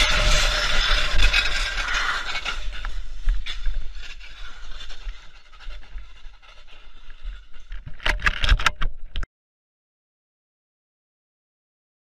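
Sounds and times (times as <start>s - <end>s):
low rumble and scraping: 0.0s - 8.4s.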